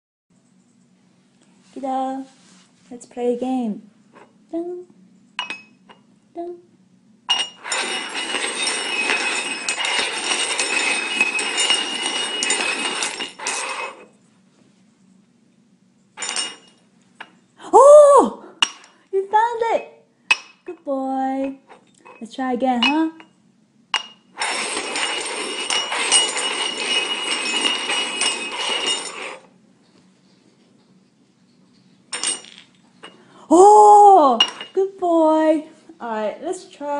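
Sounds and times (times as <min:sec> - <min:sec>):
metallic clinks and knocks: 0:05.4 - 0:06.0, 0:07.3 - 0:14.0, 0:16.2 - 0:17.4, 0:24.0 - 0:30.0, 0:31.5 - 0:33.2, 0:34.4 - 0:34.8
metal cups scraping on wooden floor: 0:07.3 - 0:14.2, 0:16.2 - 0:17.3, 0:24.0 - 0:29.6, 0:31.5 - 0:33.2, 0:34.4 - 0:34.8.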